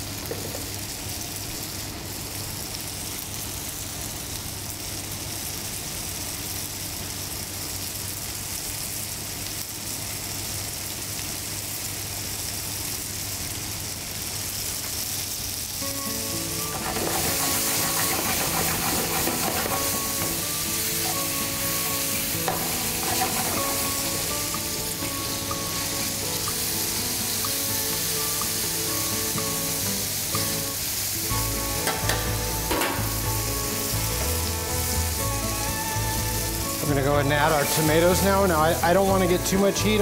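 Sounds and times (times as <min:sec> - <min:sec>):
vegetables sizzling in hot oil: 0:00.0 - 0:40.0
background music: 0:15.8 - 0:40.0
tongs turning food: 0:16.7 - 0:27.6.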